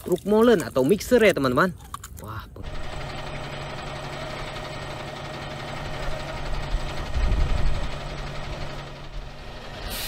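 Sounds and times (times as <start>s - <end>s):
diesel truck engine rumbling: 2.5s - 10.0s.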